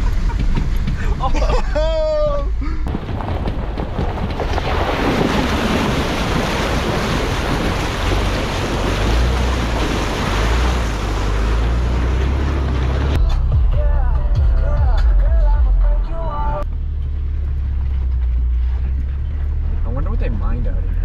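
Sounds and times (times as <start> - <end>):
low engine rumble: 0.0 - 21.0
wind buffeting microphone: 2.9 - 11.5
water splashing around tyres: 2.9 - 13.2.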